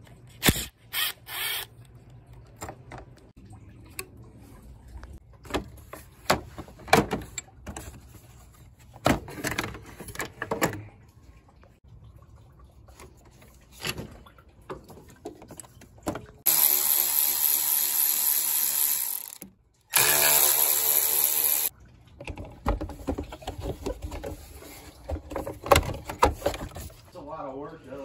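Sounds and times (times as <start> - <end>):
cordless power tool spinning: 0.4 - 1.7, 16.5 - 21.7.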